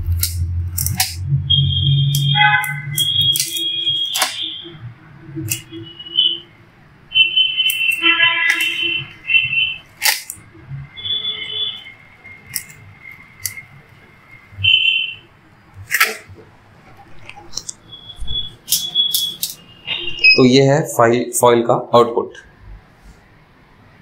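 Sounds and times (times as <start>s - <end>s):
high electronic beeps: 0.0s - 15.4s, 17.0s - 20.7s.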